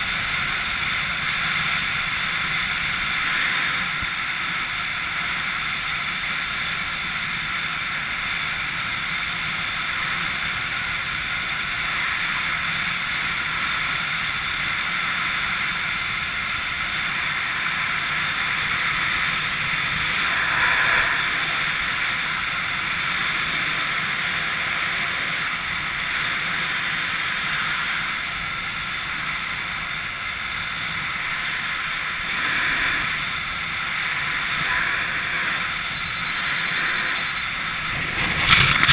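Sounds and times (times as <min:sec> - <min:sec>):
wind buffeting microphone: 0:32.3 - 0:38.9.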